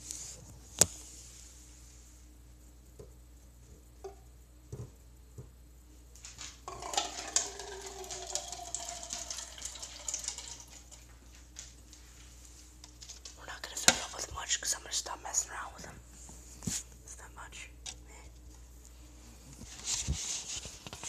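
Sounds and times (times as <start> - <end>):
water being poured: 6.7 - 11.1.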